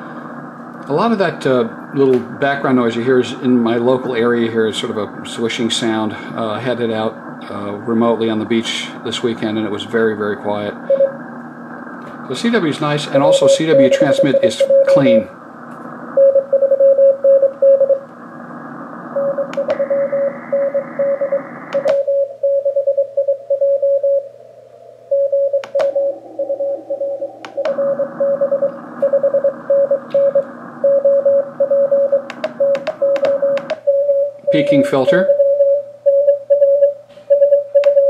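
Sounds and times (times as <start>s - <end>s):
morse code tone: 10.9s - 11.2s, 13.2s - 15.2s, 16.2s - 18.0s, 19.2s - 24.3s, 25.1s - 38.0s
swishing radio noise: 12.1s - 16.2s
sharp clicks: 19.5s - 19.8s, 21.7s - 22.0s, 25.6s - 26.0s, 27.4s - 27.8s, 32.3s - 33.8s.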